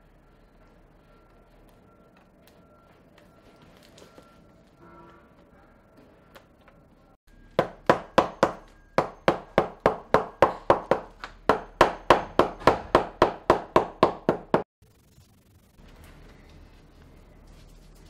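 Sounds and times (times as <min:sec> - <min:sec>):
hammer knocking on leather sole: 0:07.6 - 0:14.7.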